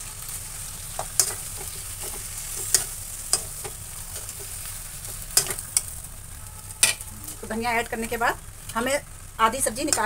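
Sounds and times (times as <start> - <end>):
frying sizzle: 0.0 - 10.0
metal spoon scraping pan: 1.0 - 5.9.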